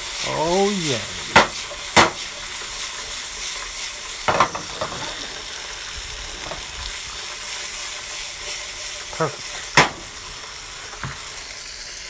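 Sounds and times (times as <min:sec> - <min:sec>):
steak sizzling in frying pan: 0:00.0 - 0:12.0
frying pan clatter: 0:01.3 - 0:05.7, 0:06.3 - 0:06.8, 0:07.9 - 0:11.4.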